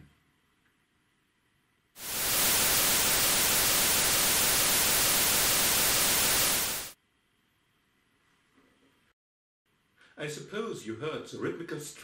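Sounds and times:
steady synthetic hiss: 0:02.0 - 0:07.0.

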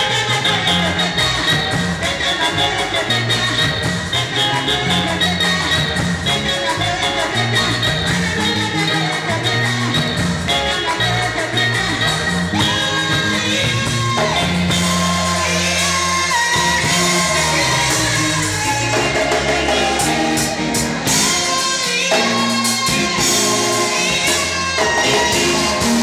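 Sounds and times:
drum kit: 0:00.0 - 0:26.0
live gospel band music: 0:00.0 - 0:26.0
person singing: 0:00.0 - 0:26.0.

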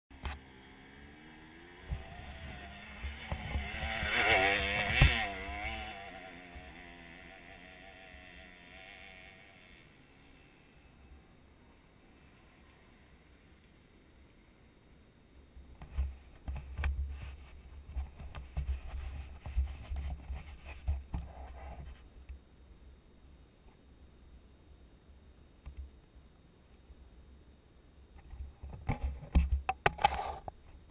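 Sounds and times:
dirt bike engine revving: 0:00.1 - 0:10.9
muffled dirt bike rumble: 0:00.1 - 0:14.6, 0:15.7 - 0:22.2, 0:28.1 - 0:30.9
sharp thumps: 0:01.8 - 0:06.0.

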